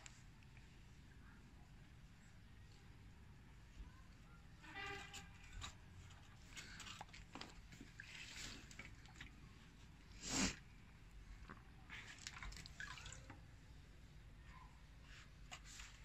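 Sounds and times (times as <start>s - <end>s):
water sloshing: 6.3s - 9.6s, 11.9s - 13.4s
water dripping: 12.2s - 13.5s.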